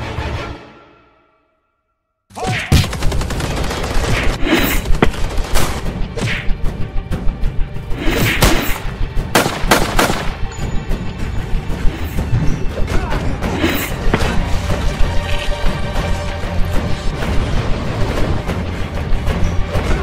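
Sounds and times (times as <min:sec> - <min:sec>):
background music: 0:00.0 - 0:20.0
rapid gunfire: 0:02.6 - 0:06.0, 0:09.3 - 0:10.4.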